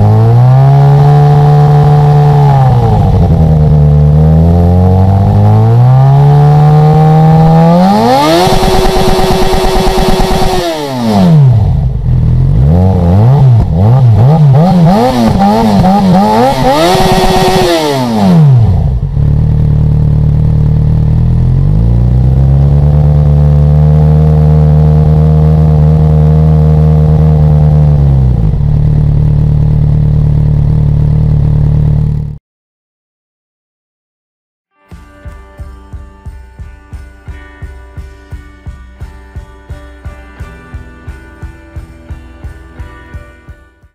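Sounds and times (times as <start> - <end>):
motorcycle engine revving: 0.0 - 32.4.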